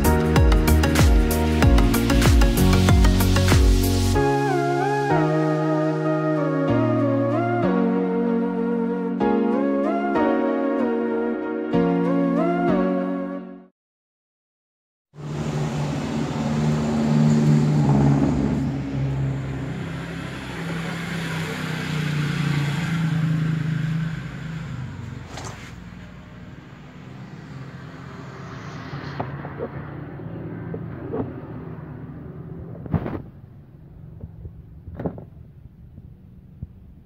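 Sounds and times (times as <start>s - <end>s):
bass-heavy music through speakers: 0.0s - 10.5s.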